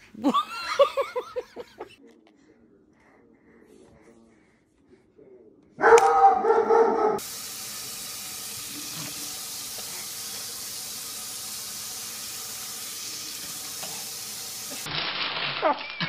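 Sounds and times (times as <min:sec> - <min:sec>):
faucet splashing into sink: 0:07.2 - 0:14.9.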